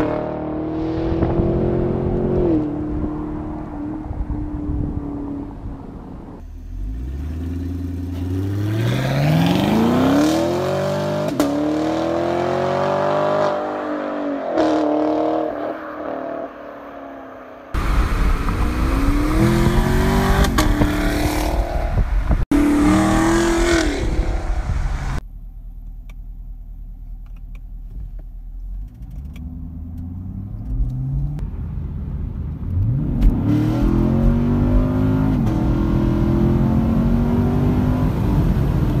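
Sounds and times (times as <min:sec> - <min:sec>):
car engine accelerating: 0:00.0 - 0:25.2, 0:28.3 - 0:39.0
wind and road noise: 0:00.0 - 0:39.0.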